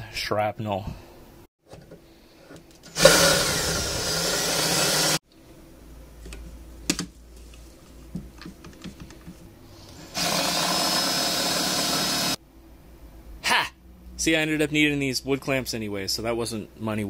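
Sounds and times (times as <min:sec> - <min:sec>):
cordless drill running: 0:02.9 - 0:05.2, 0:10.1 - 0:12.4.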